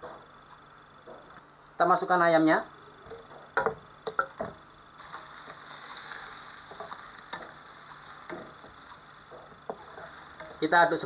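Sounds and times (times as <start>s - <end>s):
food sizzling in a frying pan: 3.0s - 11.0s
wooden spatula scraping a pan: 5.0s - 10.7s.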